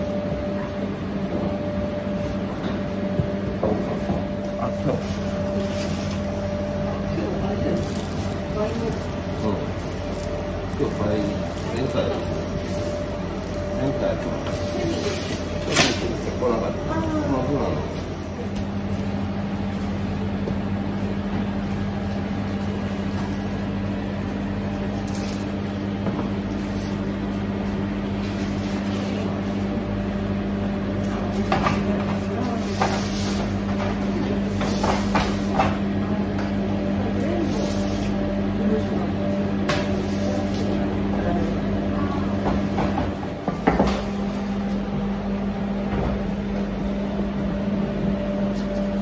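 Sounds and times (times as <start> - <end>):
low hum of kitchen machinery: 0.0 - 49.0.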